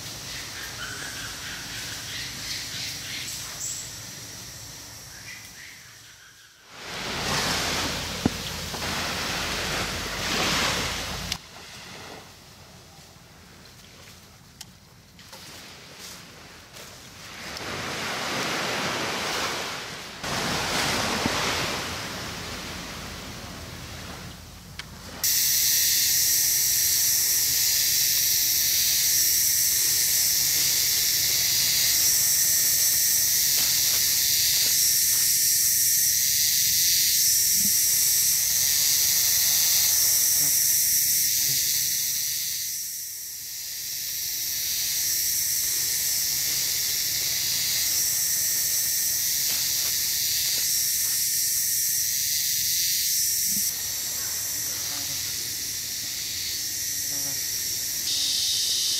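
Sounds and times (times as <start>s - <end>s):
high-pitched insect chorus: 0.0s - 12.2s, 25.2s - 58.9s.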